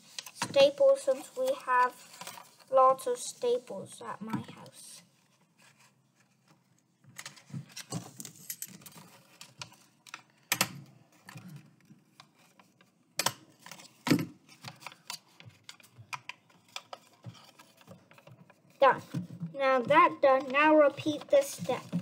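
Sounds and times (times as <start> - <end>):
paper handling: 0.0 - 3.7, 11.1 - 19.3.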